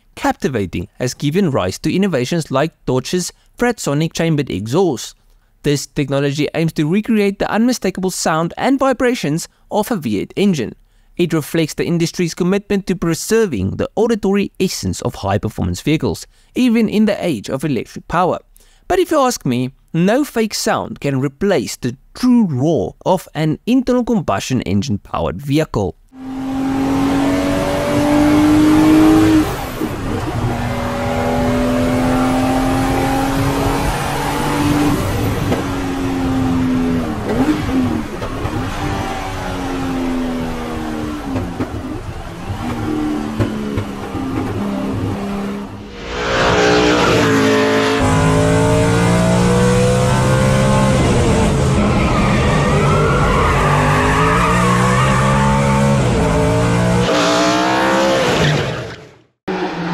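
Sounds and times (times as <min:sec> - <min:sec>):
race car engines revving: 0:26.2 - 0:59.9.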